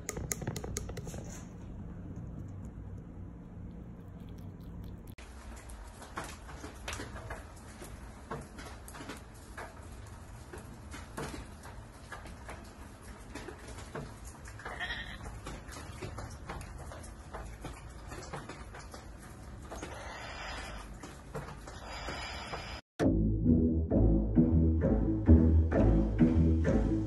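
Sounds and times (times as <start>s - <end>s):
clicks and taps: 0.0s - 5.1s.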